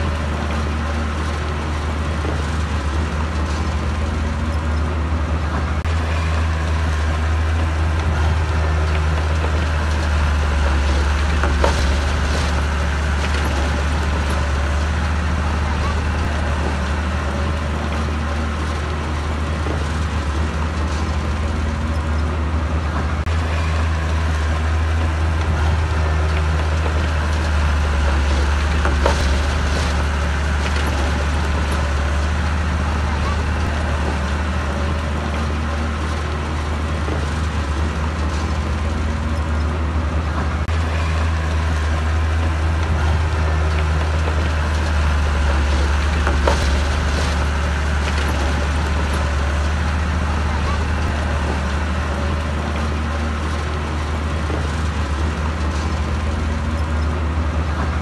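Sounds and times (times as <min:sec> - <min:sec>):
diesel engine under load: 0:00.0 - 0:58.0
sharp knocks: 0:43.8 - 0:49.8.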